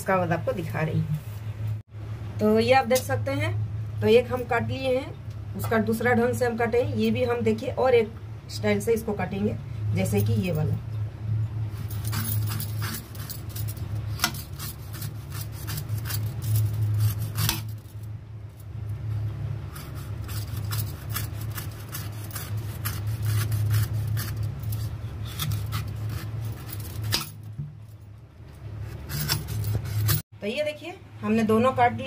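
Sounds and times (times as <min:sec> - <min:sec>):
steady low hum: 0:00.0 - 0:32.0
knife cutting coconut husk: 0:14.1 - 0:17.8, 0:19.7 - 0:27.3, 0:28.8 - 0:30.2.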